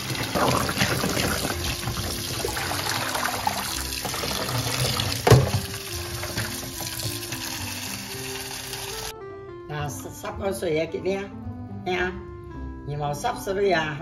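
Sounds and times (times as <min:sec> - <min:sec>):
tap water running into sink: 0:00.0 - 0:09.1
knock: 0:05.2 - 0:05.7.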